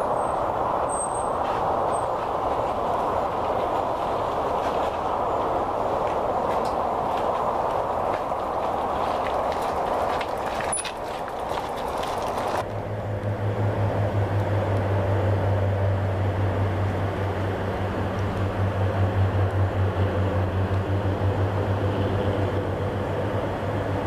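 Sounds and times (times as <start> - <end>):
low mechanical drone: 12.4 - 24.0.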